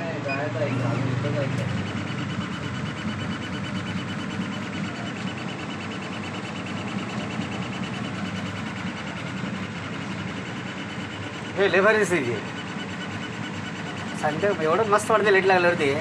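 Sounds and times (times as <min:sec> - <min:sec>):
laser cutter whirring and ticking: 0:00.0 - 0:16.0.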